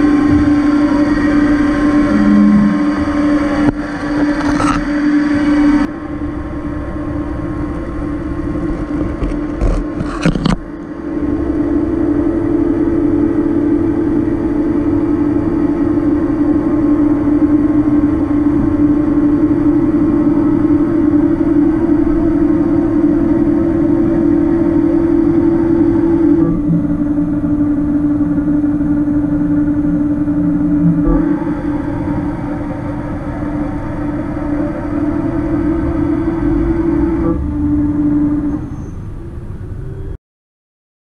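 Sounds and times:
milling machine humming: 0.0 - 39.8.

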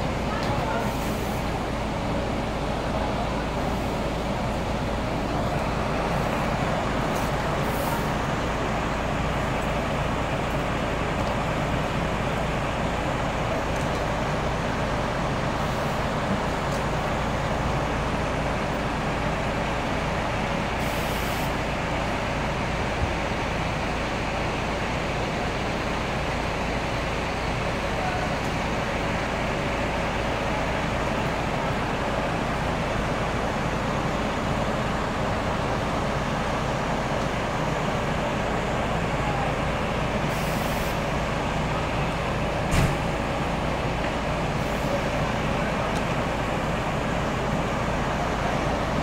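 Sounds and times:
diesel bus engines idling: 0.0 - 49.0
air brake hiss: 7.2 - 8.1, 20.8 - 21.6, 40.3 - 41.0.

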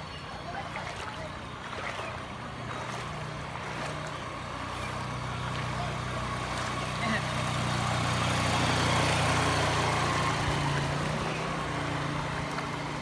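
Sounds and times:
water washing aside: 0.5 - 13.0
small motorcycle engine: 2.8 - 13.0.

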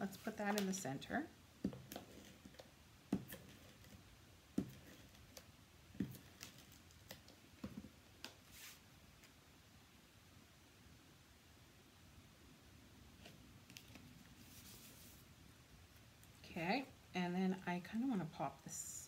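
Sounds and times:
soft paper scrape: 8.4 - 8.9, 14.4 - 15.3.

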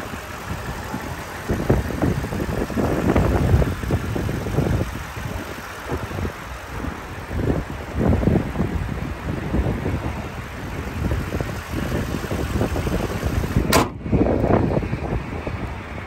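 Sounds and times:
wind buffeting: 0.0 - 16.0
truck hood slamming: 13.6 - 14.0.

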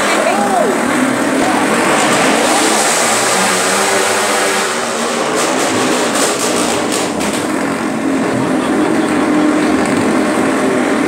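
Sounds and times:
crowd din: 0.0 - 4.6, 8.2 - 10.3.

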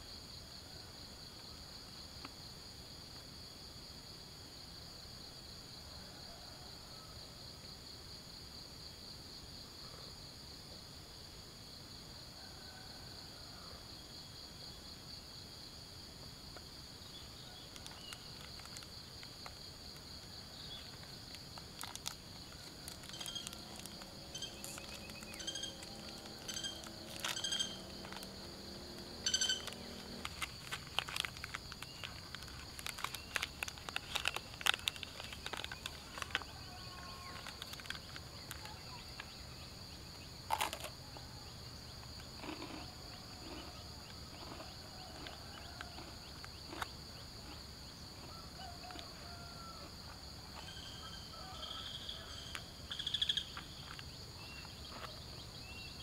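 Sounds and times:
insects droning: 0.0 - 56.0
plastic sachet crinkling: 17.8 - 18.9, 21.0 - 27.4, 29.6 - 36.5, 37.2 - 38.7.

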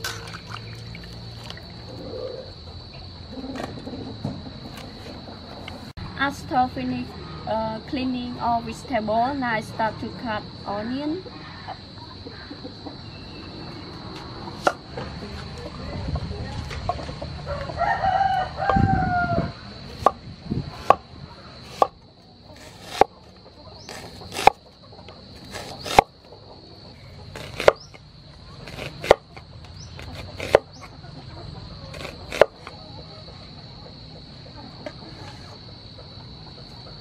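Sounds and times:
high insect drone: 17.2 - 37.0
rooster crowing: 17.4 - 19.6
cleaver chopping on wooden board: 22.6 - 23.1, 23.9 - 24.6, 25.5 - 26.1, 28.7 - 29.4, 30.0 - 30.7, 31.9 - 32.7.

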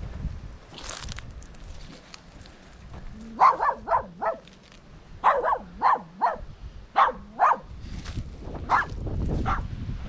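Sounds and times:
dog barking: 3.3 - 4.4, 5.2 - 7.7, 8.7 - 9.7.

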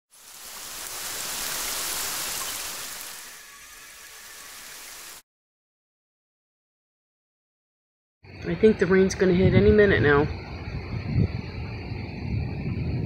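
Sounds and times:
rain hissing: 0.1 - 5.2.

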